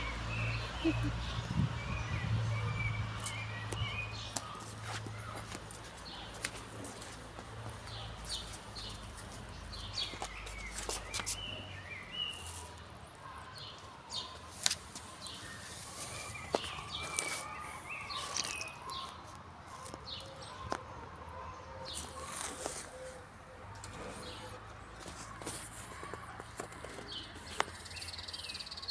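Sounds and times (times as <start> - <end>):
rustling on dry wood chips: 3.2 - 12.9, 13.7 - 20.4, 21.9 - 28.1
sharp clicks on wood chips: 14.5 - 15.1, 16.5 - 20.8.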